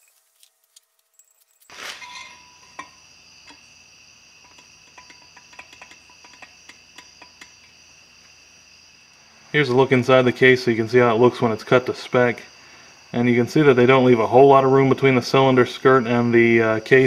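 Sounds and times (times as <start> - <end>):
faint high whine: 0.0 - 17.0
light metallic clicks and taps: 4.4 - 7.8.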